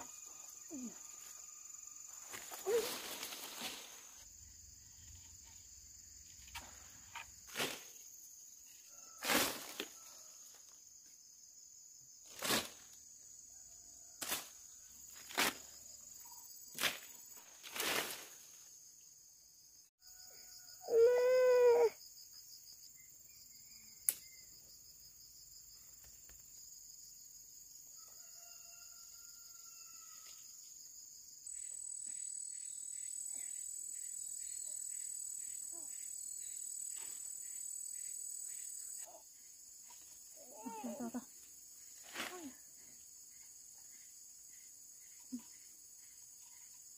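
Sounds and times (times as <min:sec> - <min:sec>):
insects droning: 0:00.0 - 0:46.9
branches snapping: 0:14.2 - 0:14.5, 0:15.2 - 0:15.7.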